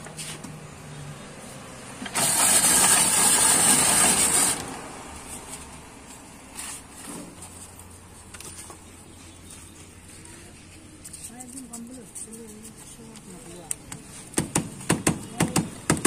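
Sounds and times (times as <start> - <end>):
ice shaving machine scraping: 2.0 - 4.7.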